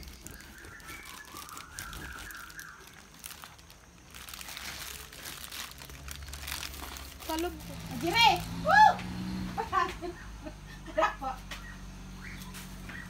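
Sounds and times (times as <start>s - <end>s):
plastic crinkling: 0.0s - 8.6s
crackling: 0.0s - 9.2s.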